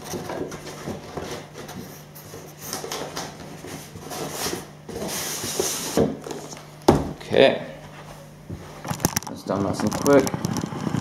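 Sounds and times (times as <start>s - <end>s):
cardboard box rustling and scraping: 0.1s - 6.6s.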